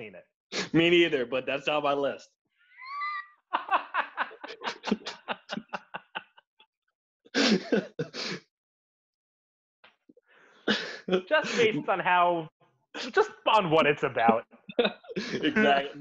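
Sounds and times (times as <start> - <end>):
men laughing: 2.8 - 6.4, 7.4 - 8.3, 10.7 - 12.0, 13.0 - 13.4, 14.2 - 16.0.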